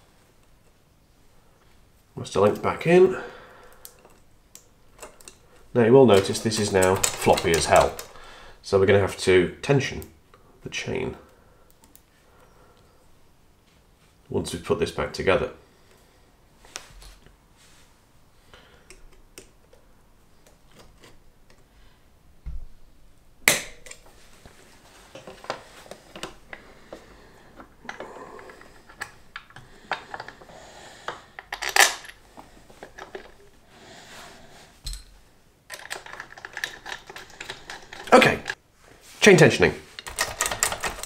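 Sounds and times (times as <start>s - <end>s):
metal parts clinking and rattling: 6.1s - 8.2s, 31.4s - 32.2s, 32.8s - 33.5s, 34.9s - 38.6s, 40.0s - 41.0s.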